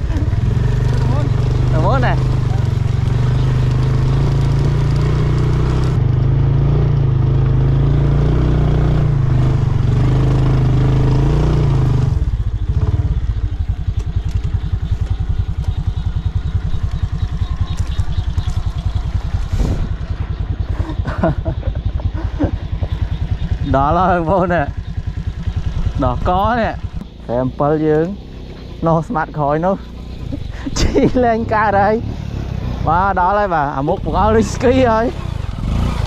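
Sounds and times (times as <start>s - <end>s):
small motorcycle engine revving: 0.0s - 36.0s.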